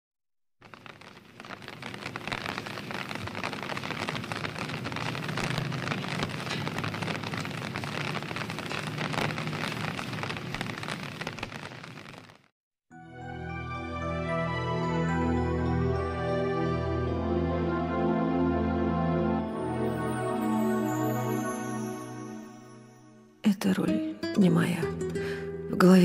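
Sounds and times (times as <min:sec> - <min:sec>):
rain on window glass: 0:00.6 - 0:12.5.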